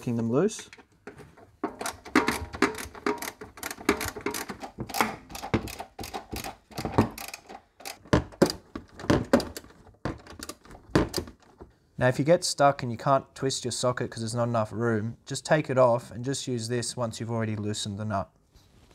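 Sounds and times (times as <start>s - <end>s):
socket ratchet clicking: 1.8s - 8.0s.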